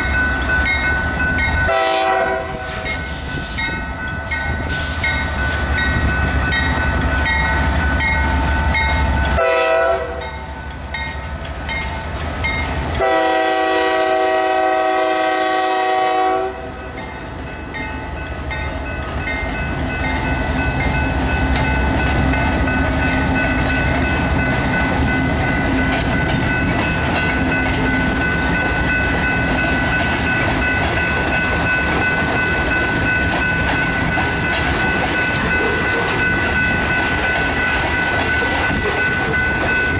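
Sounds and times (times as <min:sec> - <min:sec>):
train wheels clicking on rail joints: 0:00.0 - 0:09.4, 0:10.2 - 0:14.7, 0:17.0 - 0:39.9
crossing bell ringing: 0:00.0 - 0:39.9
diesel locomotive rumble: 0:00.0 - 0:39.9
locomotive air horn: 0:01.7 - 0:03.2, 0:09.4 - 0:10.3, 0:13.0 - 0:16.8.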